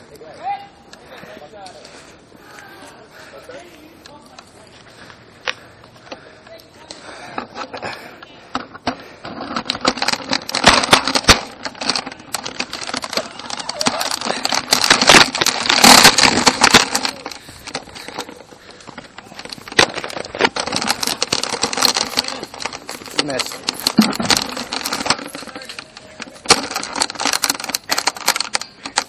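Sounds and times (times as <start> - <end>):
toy blaster clattering and knocking: 8.5 - 29.0.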